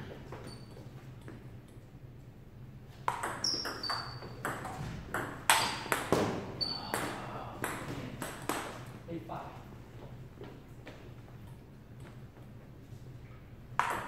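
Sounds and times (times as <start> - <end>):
ping pong ball clicking: 3.1 - 6.1.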